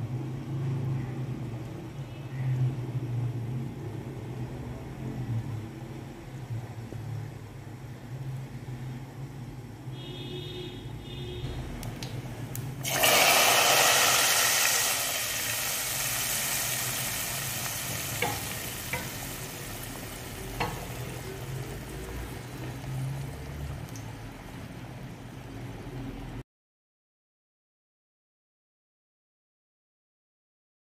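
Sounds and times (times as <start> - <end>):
hot oil sizzling: 11.9 - 26.2.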